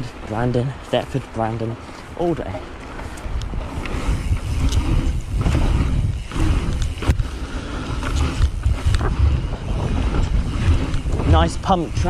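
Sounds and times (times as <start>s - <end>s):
bike tyres on dirt: 0.0s - 12.0s
wind on the microphone: 1.6s - 12.0s.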